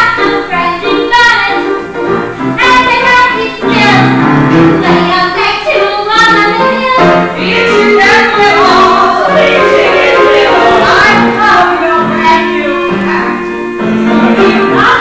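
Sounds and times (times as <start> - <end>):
instrumental accompaniment: 0.0 - 15.0
cast singing musical theatre: 4.8 - 15.0.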